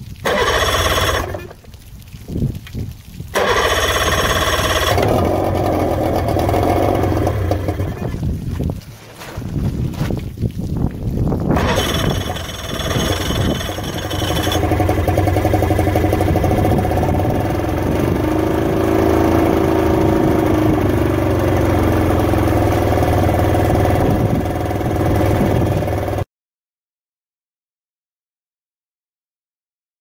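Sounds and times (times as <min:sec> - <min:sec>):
water spraying: 0:00.0 - 0:26.2
outboard motor running: 0:00.2 - 0:01.6, 0:03.3 - 0:08.4, 0:11.5 - 0:26.2.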